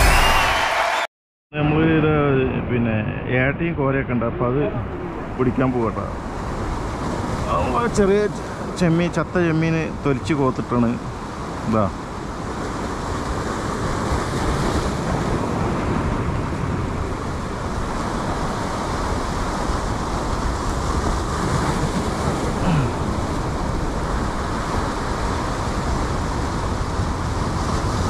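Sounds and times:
wind on microphone: 11.0s - 28.0s.

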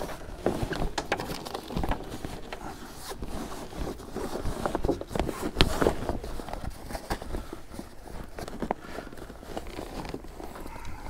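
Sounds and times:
canvas canopy rustling and scraping: 0.0s - 11.0s.

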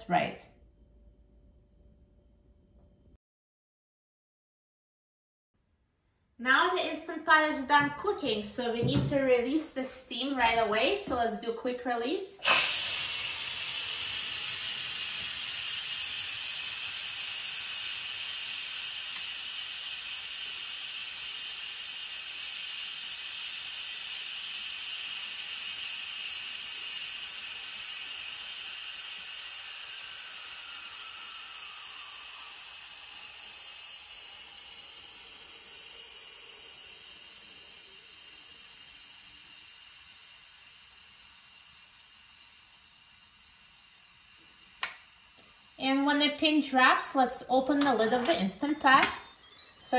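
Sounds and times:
steam hissing from pressure valve: 12.4s - 48.8s.

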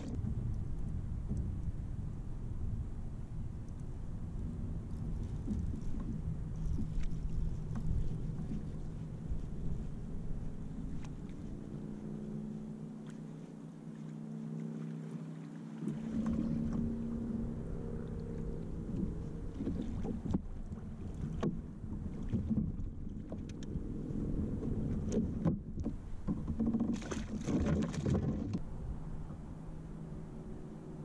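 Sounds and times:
wind buffeting microphone: 0.0s - 12.8s
steady low hum: 0.0s - 31.0s.

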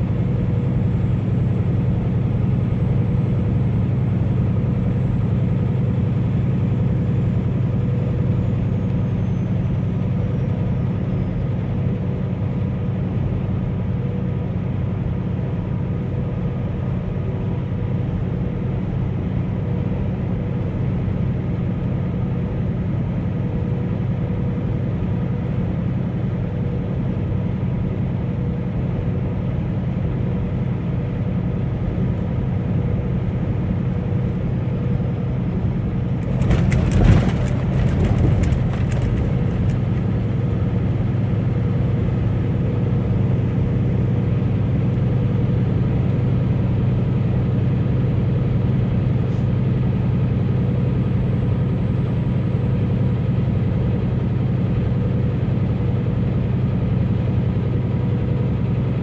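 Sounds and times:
truck engine and road noise: 0.0s - 59.0s
rattling clatter: 36.2s - 40.3s.

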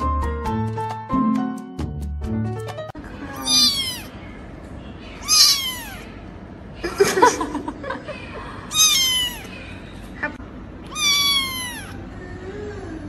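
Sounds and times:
kitten meowing: 3.3s - 4.1s, 5.2s - 6.1s, 8.7s - 9.5s, 10.8s - 12.0s.

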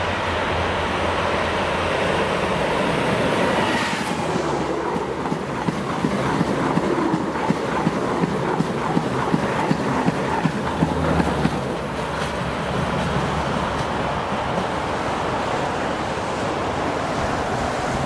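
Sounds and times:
train passing at speed: 0.0s - 18.0s
rhythmic wheel clicks on rails: 4.9s - 14.7s.

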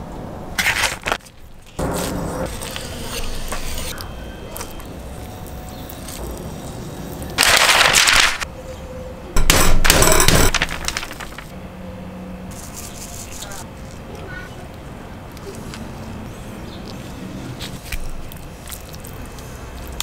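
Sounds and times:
paper crackling: 0.6s - 3.6s, 7.2s - 8.5s, 10.0s - 11.5s.

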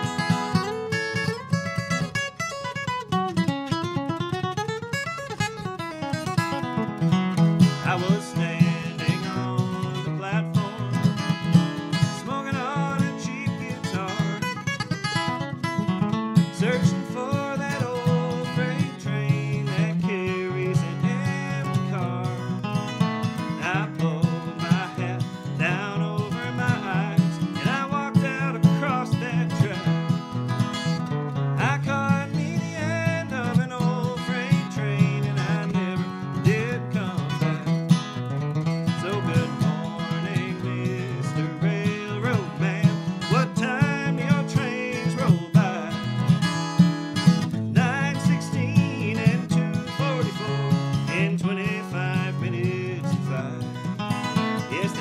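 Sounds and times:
acoustic guitar picked: 0.0s - 55.0s
man singing: 7.6s - 15.4s, 16.4s - 30.3s, 31.5s - 37.8s, 38.8s - 46.6s, 47.2s - 55.0s.

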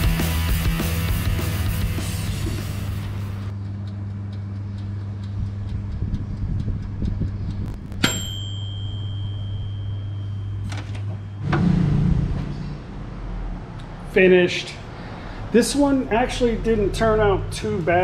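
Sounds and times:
electric oven humming: 1.6s - 14.8s
oven timer click: 3.5s - 11.4s
low loud sound: 7.0s - 16.2s
high timer tone: 7.6s - 13.1s.

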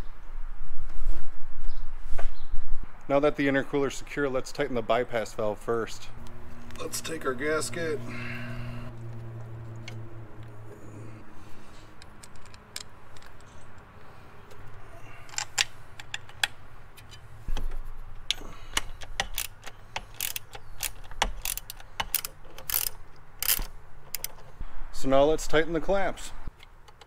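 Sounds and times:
metal parts clicking: 12.0s - 13.9s, 14.5s - 17.3s, 18.2s - 24.5s
socket ratchet clicking: 18.2s - 24.5s.

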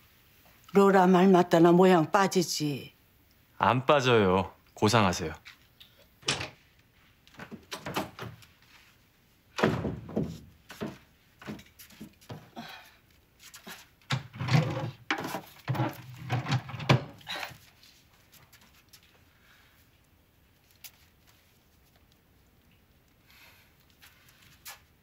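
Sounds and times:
door opening: 6.2s - 6.6s, 7.4s - 8.4s
things knocking on wooden dresser: 9.6s - 11.7s
drawer pulled open: 14.1s - 17.2s.

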